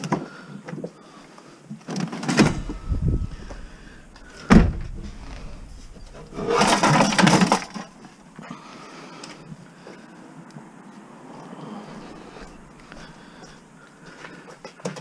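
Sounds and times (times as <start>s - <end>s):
scrap knocks and thuds: 2.3s - 7.9s
loud bang: 2.4s - 7.7s
rough scraping: 2.4s - 8.2s.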